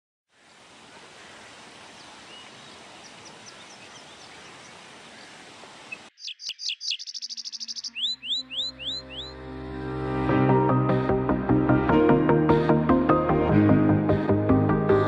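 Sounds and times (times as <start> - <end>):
outdoor ambience hiss: 0.3 - 7.9
sweeping bird calls: 0.4 - 9.4
bird chirps: 1.2 - 9.4.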